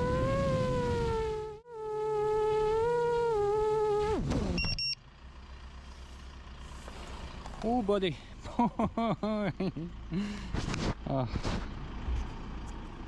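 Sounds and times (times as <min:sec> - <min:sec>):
drone motors whining: 0:00.0 - 0:05.0
short high beeps: 0:04.6 - 0:05.0.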